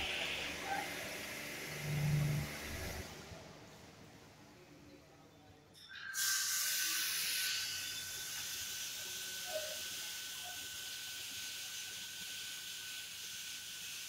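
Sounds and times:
thin high whine: 0.0 - 3.2
high-pressure water jets hissing: 6.2 - 14.0.

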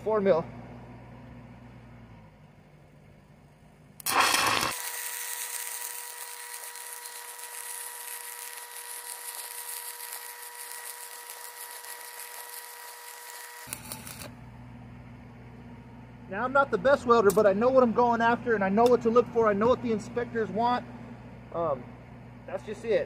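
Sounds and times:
steady hum: 0.0 - 23.0
welding arc crackling hiss: 4.0 - 14.4.

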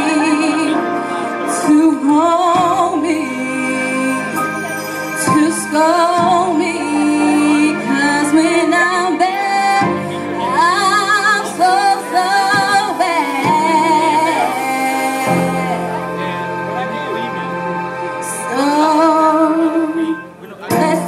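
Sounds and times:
woman singing with vibrato: 0.0 - 16.2, 18.2 - 21.0
held accompaniment chords: 0.0 - 21.0.

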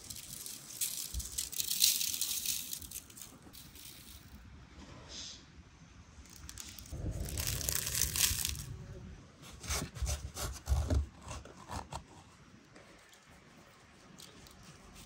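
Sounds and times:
scraping and rubbing: 6.3 - 8.8, 9.4 - 15.0.

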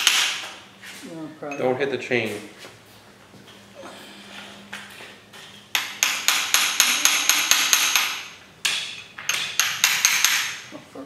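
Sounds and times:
hammer striking metal: 5.7 - 10.6.

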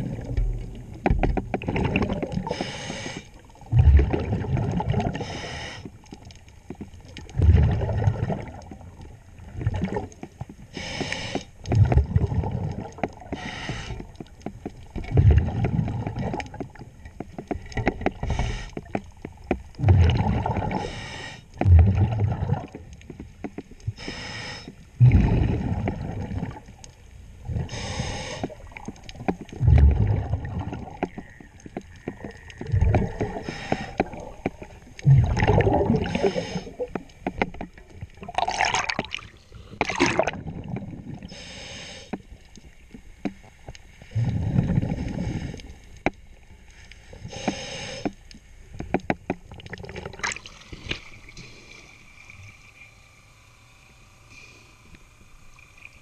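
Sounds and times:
gurgle of exhaled bubbles: 0.0 - 2.8, 3.4 - 5.8, 7.1 - 10.2, 11.7 - 14.1, 14.8 - 18.7, 19.6 - 23.0, 25.0 - 41.4, 44.1 - 45.6, 49.5 - 52.1
regulator hissing inhale: 2.4 - 3.4, 5.2 - 6.0, 10.7 - 11.6, 13.3 - 14.0, 18.2 - 18.9, 20.8 - 21.6, 24.0 - 24.9, 27.7 - 28.6, 33.3 - 34.2, 36.1 - 36.9, 41.2 - 42.2, 44.0 - 46.0, 46.8 - 48.2, 50.9 - 52.2, 53.8 - 55.5.

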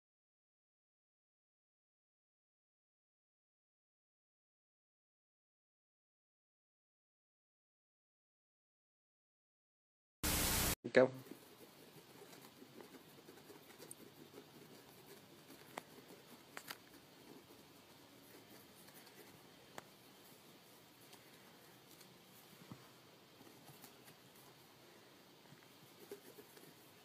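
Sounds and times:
claws scratching on bedsheet: 11.2 - 27.0.

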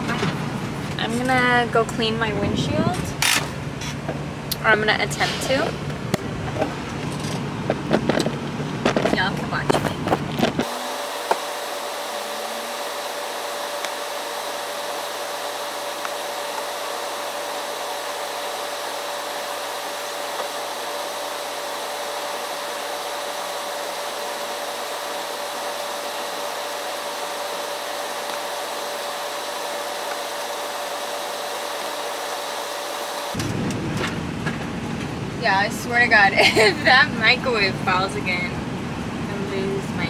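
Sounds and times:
fan running with whine: 0.0 - 40.0.

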